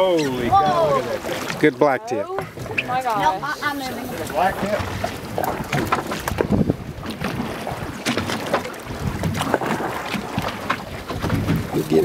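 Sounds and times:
gusty wind on microphone: 0:02.4 - 0:08.0, 0:08.8 - 0:12.0.

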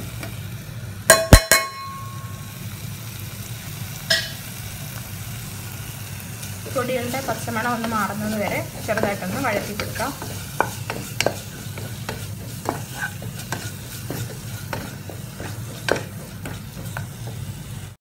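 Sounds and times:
soft sizzle: 0:00.0 - 0:18.0
wooden spatula scraping pot: 0:06.8 - 0:17.7.

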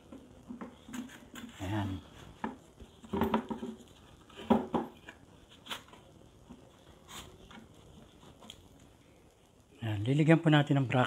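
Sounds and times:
plastic bucket knocks and clatter: 0:02.4 - 0:03.8, 0:04.4 - 0:05.0.

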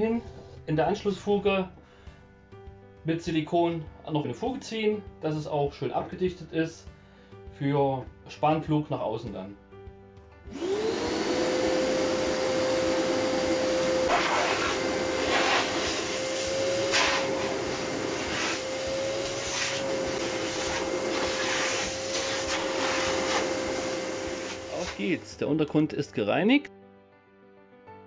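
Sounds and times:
vacuum cleaner running: 0:10.5 - 0:25.4
suction hissing: 0:11.6 - 0:25.4.

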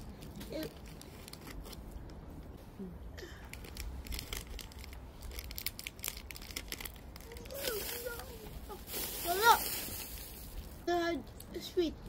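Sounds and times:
foil wrapper crinkling: 0:00.0 - 0:01.8, 0:03.5 - 0:10.8.

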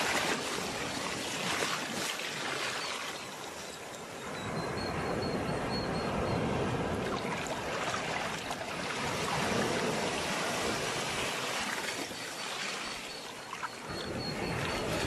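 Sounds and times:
sea waves washing on shore: 0:00.0 - 0:15.0.

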